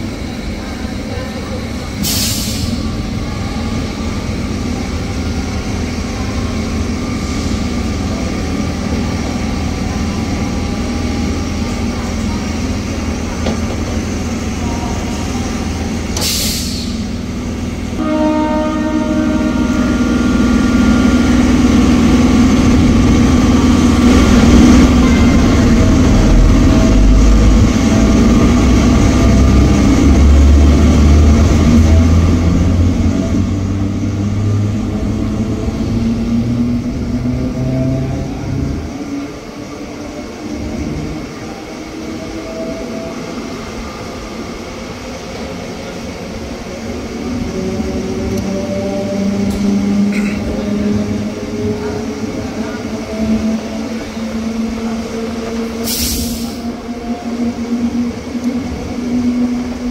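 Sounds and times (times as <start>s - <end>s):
train low rumble: 0.0s - 59.9s
sharp hisses of air: 2.0s - 2.9s, 16.2s - 17.1s, 55.8s - 56.6s.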